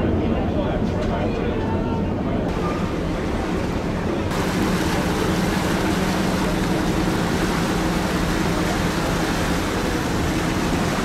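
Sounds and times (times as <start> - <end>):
boat engine humming: 2.3 - 11.0
water churning: 2.5 - 11.0.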